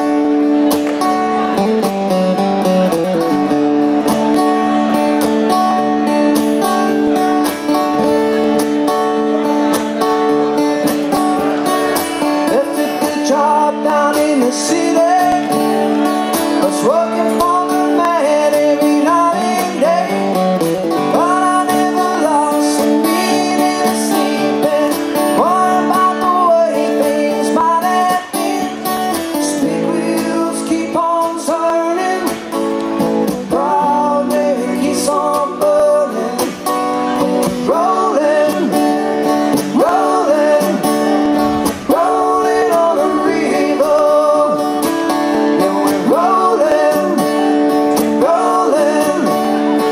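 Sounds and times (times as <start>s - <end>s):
acoustic guitars strumming: 0.0s - 49.9s
man singing: 10.5s - 49.9s.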